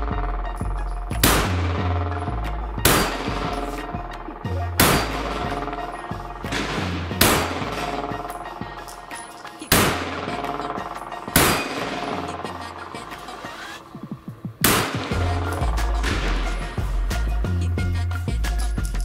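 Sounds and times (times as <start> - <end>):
background music: 0.0 - 19.0
pistol shots with echo: 1.2 - 4.1, 4.8 - 13.4, 14.6 - 16.8.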